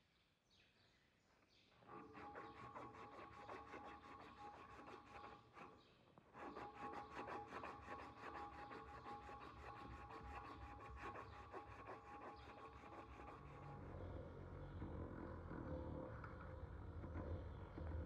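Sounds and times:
abrasive cloth sanding wood: 1.9s - 5.7s, 6.4s - 13.9s.

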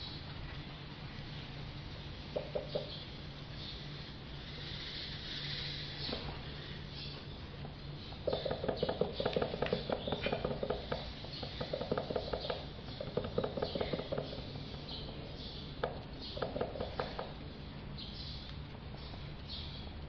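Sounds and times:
paintbrush dabbing wet taps: 2.4s - 2.9s, 8.2s - 15.2s, 15.8s - 17.4s.

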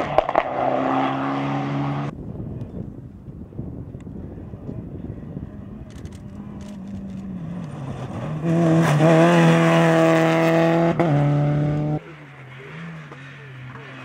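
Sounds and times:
rally car engine at high revs: 0.0s - 2.1s, 6.3s - 14.0s.

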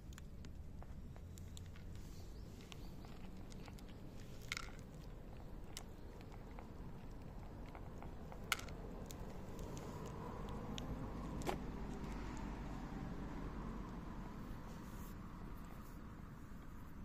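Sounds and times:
cats crunching dry kibble: 0.0s - 12.8s.

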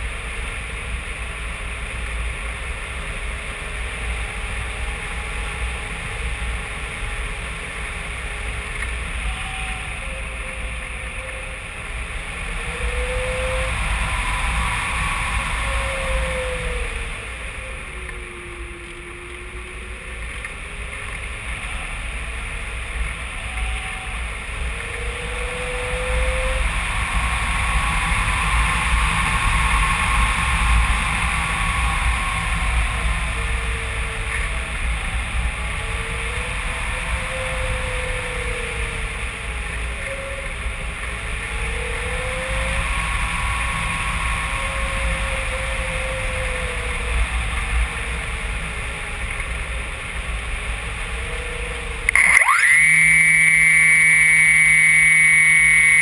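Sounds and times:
wind buffeting rumble: 0.0s - 52.3s
faint whistling tones: 23.2s - 48.1s, 51.0s - 56.0s.

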